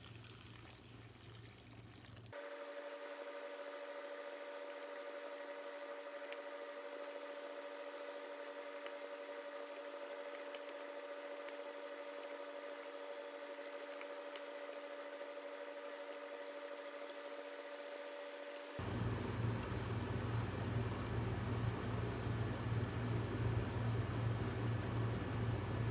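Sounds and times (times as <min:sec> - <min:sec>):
electrical hum: 0:00.0 - 0:25.9.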